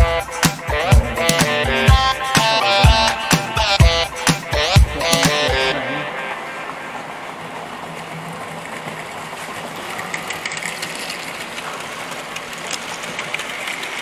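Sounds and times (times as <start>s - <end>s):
model train clicks: 8.7s - 14.0s.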